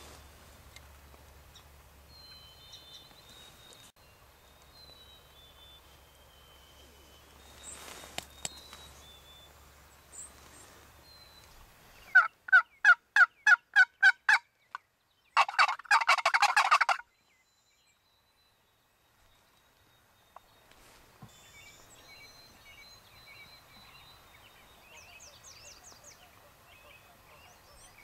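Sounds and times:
wild turkey yelps: 0:12.1 - 0:14.4, 0:15.4 - 0:17.0.

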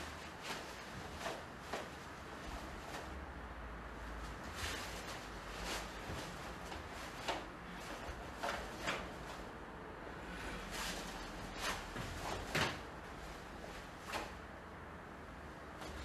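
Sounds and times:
bare feet sliding on wood: 0:00.0 - 0:03.2, 0:04.2 - 0:09.4, 0:10.4 - 0:14.4
cloth swishes and snaps: 0:00.0 - 0:03.2, 0:04.2 - 0:09.4, 0:10.7 - 0:14.4.

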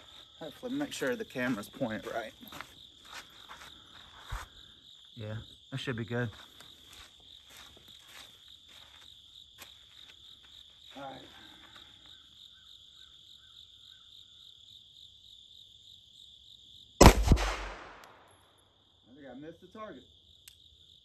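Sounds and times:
insects chirring: 0:00.0 - 0:21.0.

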